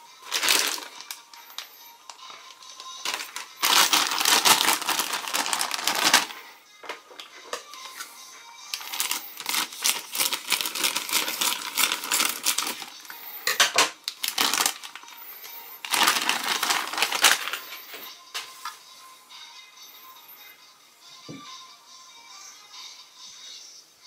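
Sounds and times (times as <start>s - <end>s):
plastic bag crinkling: 0.2s - 6.5s, 8.7s - 18.0s.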